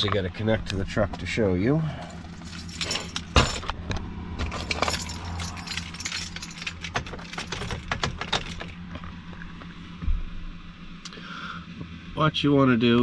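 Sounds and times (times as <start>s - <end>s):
steady low hum: 0.0s - 13.0s
keys jangling: 2.0s - 3.8s, 4.4s - 8.8s.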